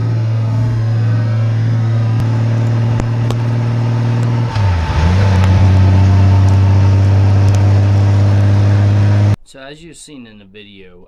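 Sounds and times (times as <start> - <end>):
motorcycle engine running: 0.0 - 9.4
road and wind noise: 0.0 - 9.4.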